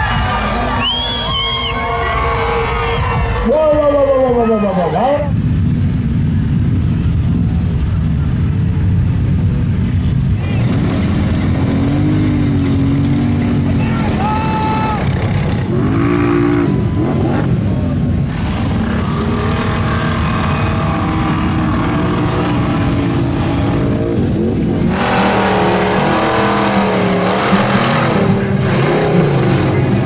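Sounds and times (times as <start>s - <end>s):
truck engine revving: 0.0s - 30.0s
engine at high revs with hiss: 10.4s - 30.0s.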